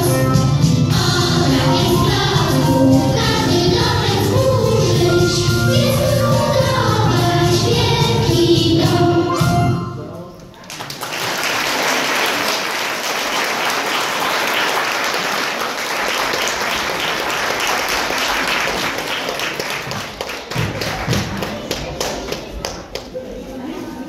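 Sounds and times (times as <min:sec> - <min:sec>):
audience applauding: 0:10.6 - 0:23.1.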